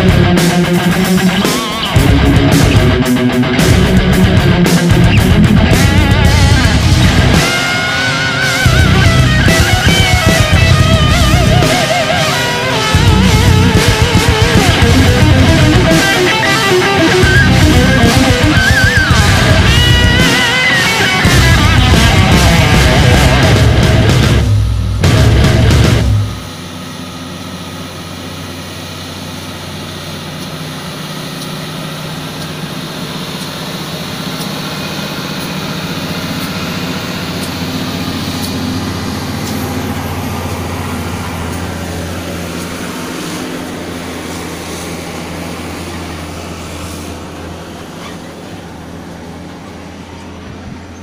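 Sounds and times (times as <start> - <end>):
truck diesel engine driving past: 5.4 - 51.0.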